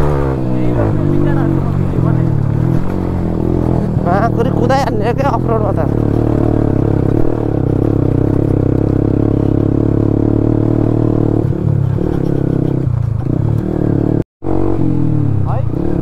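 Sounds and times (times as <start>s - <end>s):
motorcycle engine running: 0.0s - 16.0s
bike rattling over bumps: 0.6s - 11.0s.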